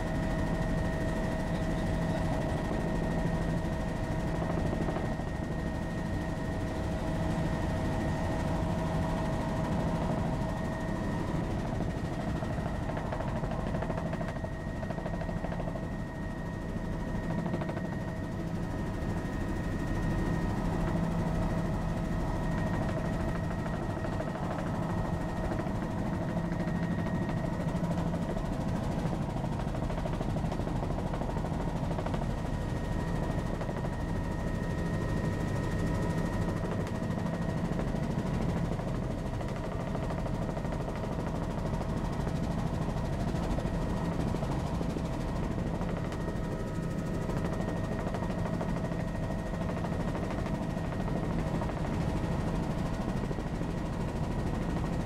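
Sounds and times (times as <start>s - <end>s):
helicopter rotor and engine: 0.0s - 55.0s.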